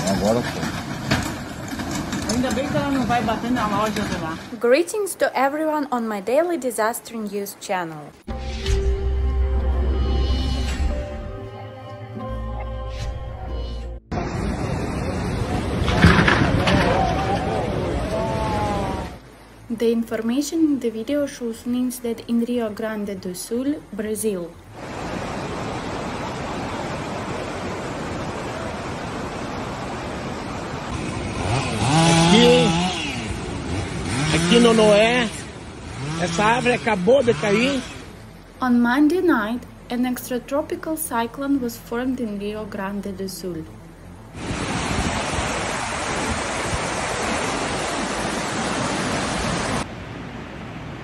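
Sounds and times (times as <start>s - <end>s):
floodwater rushing: 14.1s - 20.1s, 24.6s - 38.8s, 43.9s - 51.0s
quieter rushing water: 14.1s - 41.1s, 42.9s - 51.0s.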